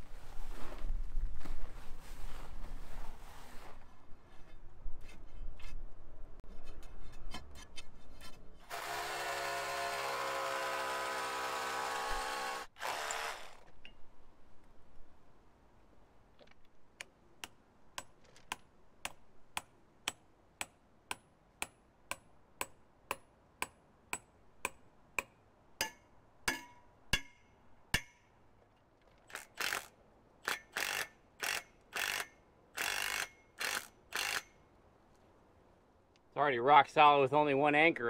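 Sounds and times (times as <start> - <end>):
power drill into concrete block: 8.7 - 13.7.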